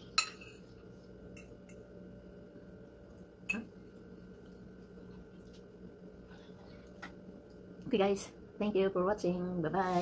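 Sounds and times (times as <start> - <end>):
metal fork clinking against plate: 0.2 - 0.6.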